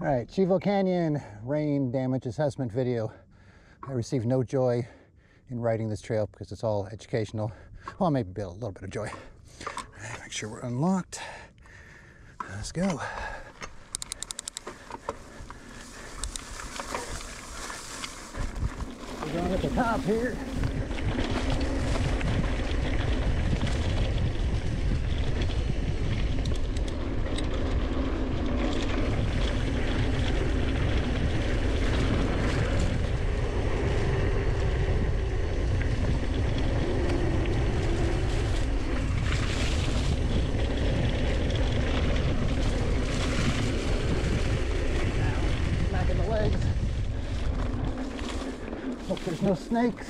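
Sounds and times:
bike clicks and rattles: 8.9s - 10.6s, 11.6s - 50.0s
tyre rumble on dirt: 14.8s - 25.0s
wind rushing over microphone: 15.1s - 50.0s.

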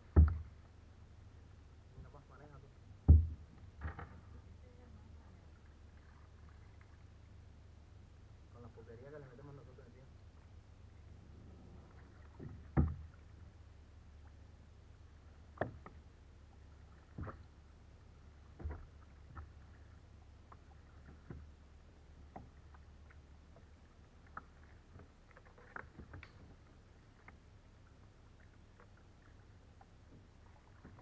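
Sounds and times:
low steady rumble: 0.0s - 31.0s
paddle splashing in water: 5.4s - 7.1s, 11.4s - 13.6s, 15.4s - 31.0s.

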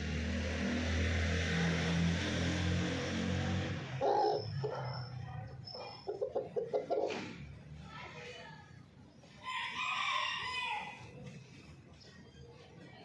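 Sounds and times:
chicken clucks: 5.7s - 7.4s
rooster crowing: 9.4s - 11.0s.

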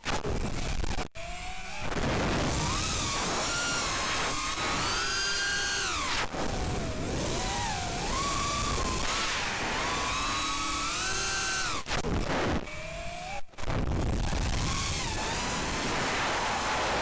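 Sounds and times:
drone motors whining: 0.0s - 17.0s
rushing wind: 13.6s - 17.0s.

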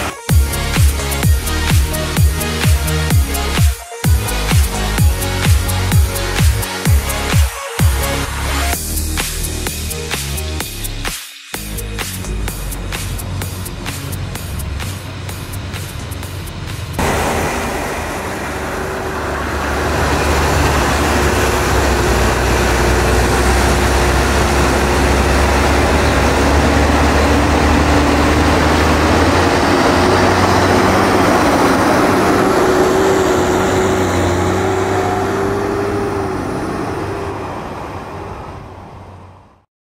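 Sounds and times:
tractor diesel engine under load: 0.0s - 11.0s, 11.8s - 39.7s
steady whine: 12.6s - 38.6s.

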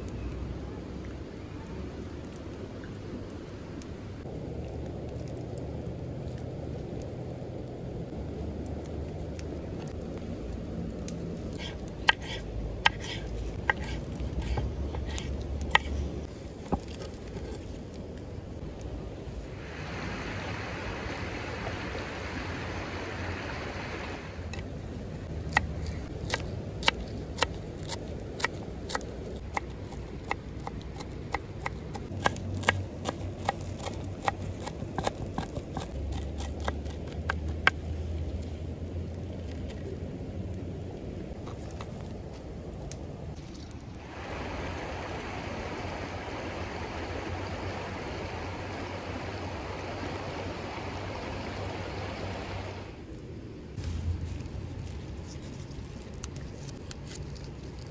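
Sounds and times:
steady background noise: 0.0s - 57.9s
knife chopping on wooden board: 11.6s - 15.9s.

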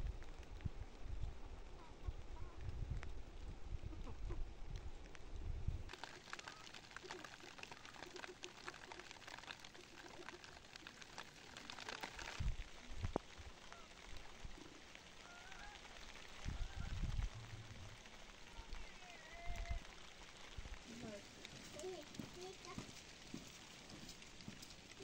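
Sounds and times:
chickens scratching in dry leaves: 5.9s - 25.0s.

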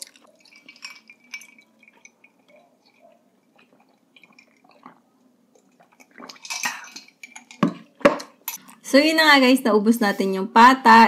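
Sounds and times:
drinking and swallowing: 0.0s - 8.8s.

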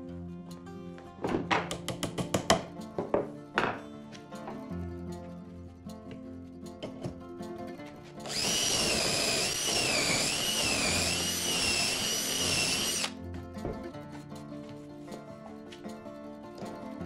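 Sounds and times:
hand drill whining into wood: 8.2s - 13.2s.

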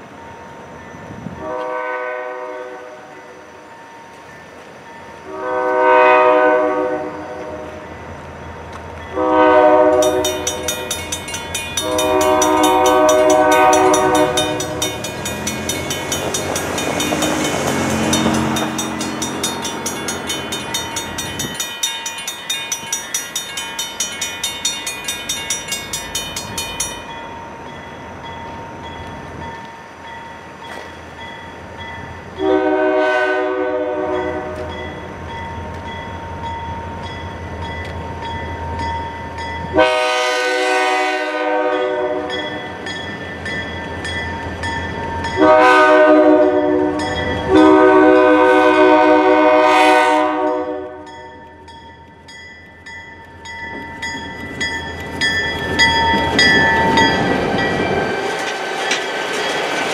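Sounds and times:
crossing bell ringing: 0.0s - 1.6s, 2.4s - 5.7s, 7.2s - 59.9s
locomotive air horn blasts: 1.4s - 3.1s, 5.3s - 7.8s, 9.1s - 10.5s, 11.8s - 15.0s, 32.4s - 34.8s, 39.7s - 42.4s, 45.4s - 51.2s.

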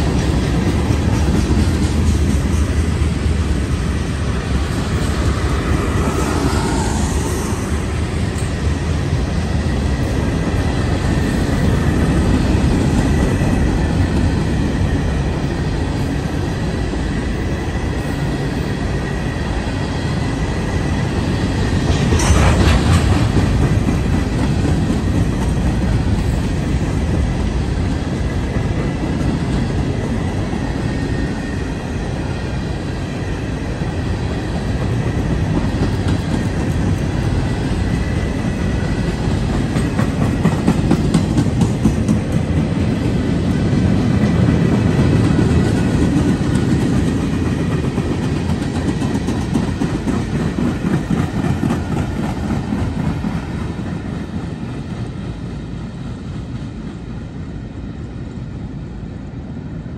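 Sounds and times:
train clank: 0.0s - 3.5s, 4.4s - 16.5s, 20.8s - 31.3s, 33.8s - 55.4s
train wheels rumbling on rails: 0.0s - 59.9s.

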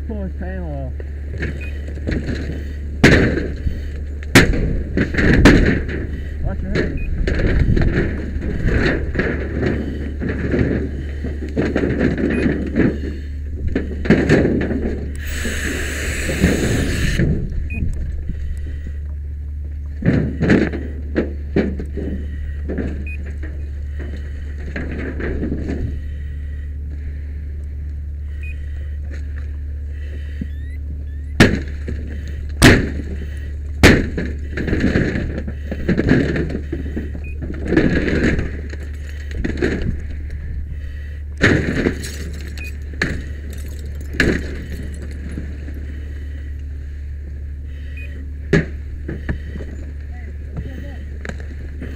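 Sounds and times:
steady low hum: 0.0s - 51.9s
sharp bangs: 1.4s - 17.5s, 31.2s - 39.8s
hose spray rushing: 15.2s - 17.2s.

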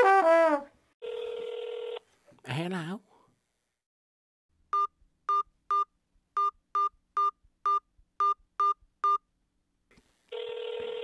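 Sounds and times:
phone ringing tone: 1.0s - 2.0s, 10.3s - 11.0s.

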